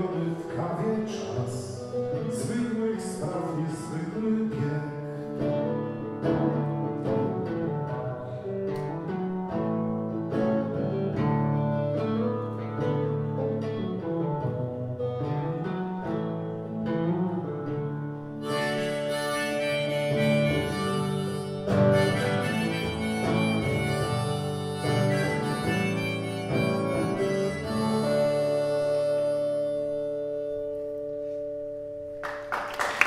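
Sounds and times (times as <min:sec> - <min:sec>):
acoustic guitar: 0:00.0 - 0:32.7
harmonica long notes: 0:17.4 - 0:32.0.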